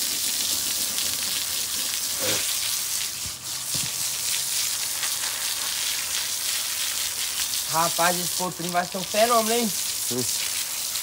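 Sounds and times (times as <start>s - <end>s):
garden hose spraying water: 0.0s - 11.0s.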